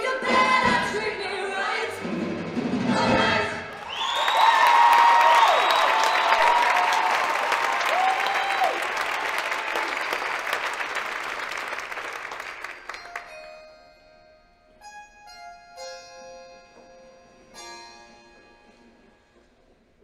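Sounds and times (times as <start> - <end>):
audience applause: 3.7 - 13.4
soft keyboard notes: 13.1 - 20.0.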